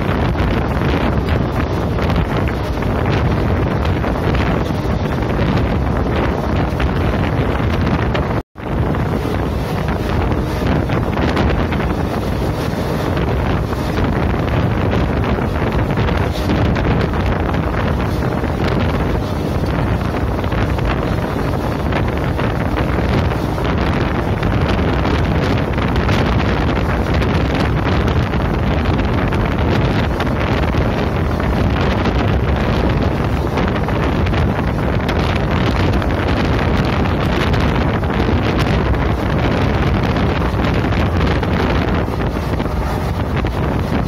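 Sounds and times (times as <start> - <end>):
wind buffeting microphone: 0.0 - 44.0
train running noise: 40.6 - 44.0.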